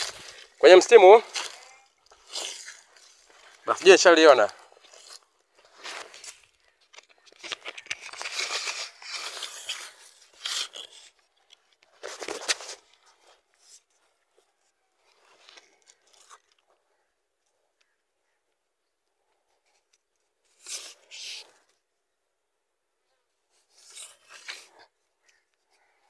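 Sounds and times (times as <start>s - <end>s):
footsteps crunching on dry leaves: 0.0s - 6.4s
vegetation rustling: 0.0s - 11.1s.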